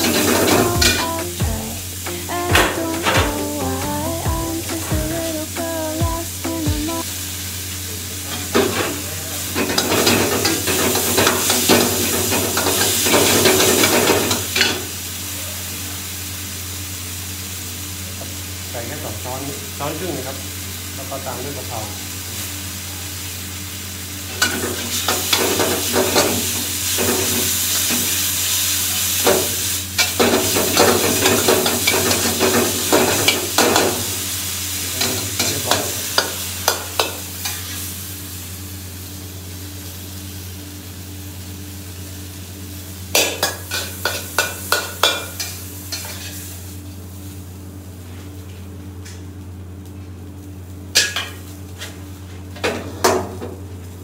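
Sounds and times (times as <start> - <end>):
steady low hum: 0.0 - 8.3
meat sizzling: 0.0 - 52.5.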